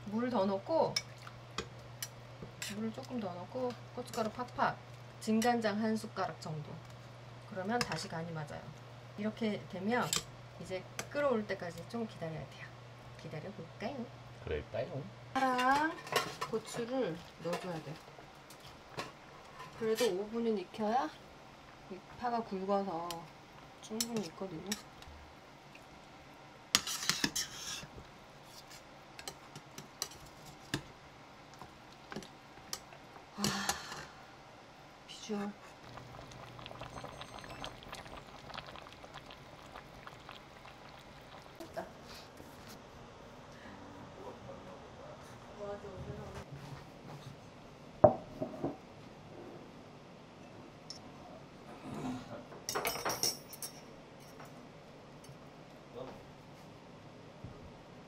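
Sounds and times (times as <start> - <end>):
ceramic bowl knocking on table: 48.0 - 48.8.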